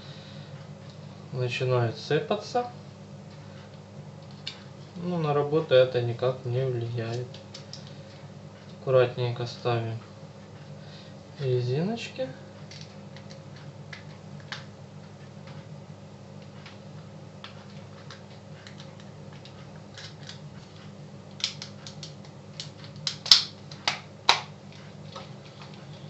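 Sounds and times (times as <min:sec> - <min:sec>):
steady low hum: 0:00.0 - 0:26.0
sharp plastic snaps: 0:21.3 - 0:24.5.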